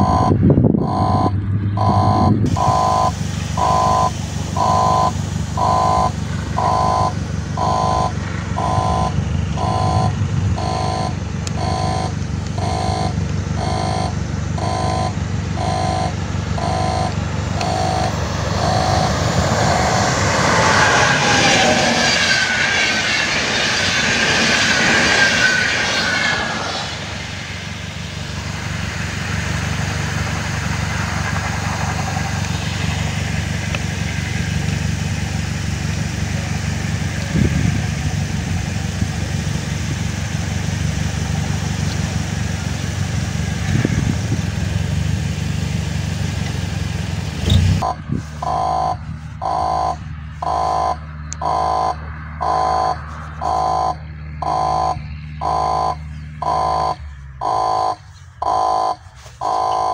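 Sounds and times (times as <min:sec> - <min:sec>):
level crossing signal beeping: 0:00.0 - 0:21.6, 0:47.5 - 0:59.9
train wheel-on-rail noise: 0:00.0 - 0:51.3
high metallic squeal: 0:17.7 - 0:27.6.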